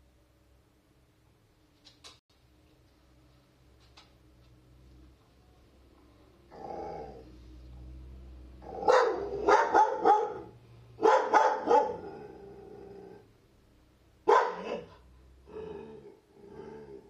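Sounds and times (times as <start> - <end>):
dog growling low: 6.5 - 7.8, 11.9 - 13.4, 15.4 - 17.0
dog barking: 8.7 - 12.1, 14.2 - 15.0.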